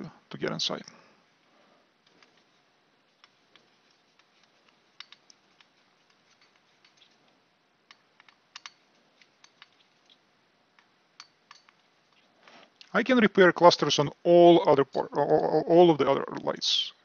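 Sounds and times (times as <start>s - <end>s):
screwdriver turning screws clicking: 4.2s - 7.1s, 7.9s - 10.1s.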